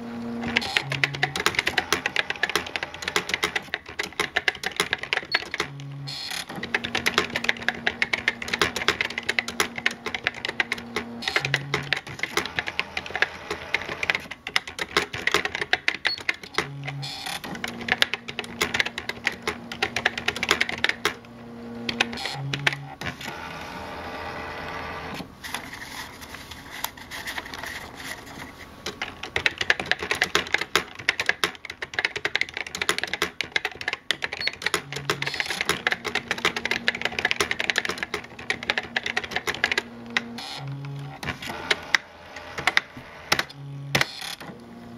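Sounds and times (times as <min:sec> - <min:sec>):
typewriter motor hum: 0:00.0 - 0:25.3, 0:27.5 - 0:44.9
typewriter key clicks: 0:00.5 - 0:05.8, 0:06.5 - 0:21.2, 0:28.9 - 0:40.3.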